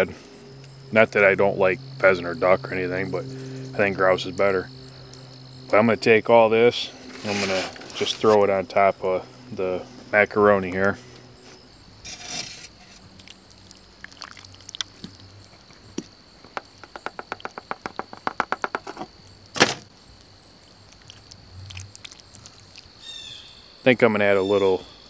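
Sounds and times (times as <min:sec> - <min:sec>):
food sliding out of foil pan: 0:07.1 - 0:08.4, 0:12.0 - 0:13.0
plastic fork scraping foil pan: 0:07.1 - 0:08.4, 0:12.0 - 0:13.0.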